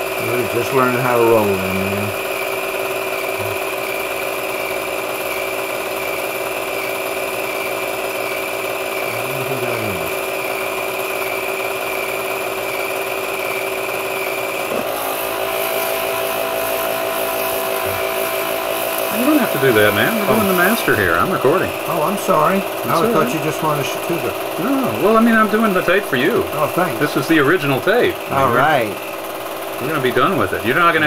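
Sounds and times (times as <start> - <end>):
film projector whirring: 0.0 - 31.0
pulsing tone: 14.7 - 30.5.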